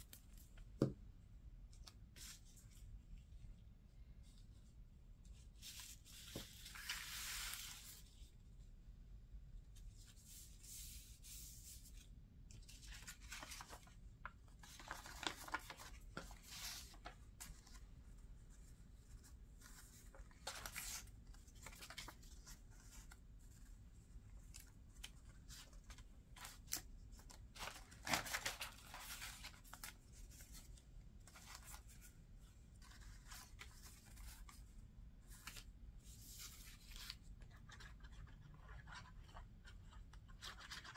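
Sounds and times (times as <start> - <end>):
paper rustling and sliding: 5.6 - 8.1, 14.6 - 17.8.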